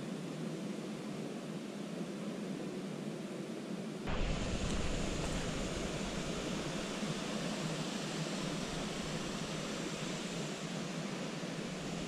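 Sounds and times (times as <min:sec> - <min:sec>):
low rumble: 0:04.1 - 0:10.4
wind on microphone: 0:04.1 - 0:12.0.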